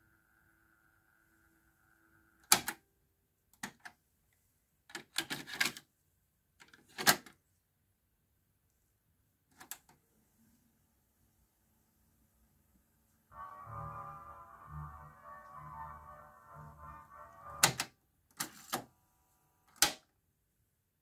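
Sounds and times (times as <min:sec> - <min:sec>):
faint steady tone: 0:00.0 - 0:03.2.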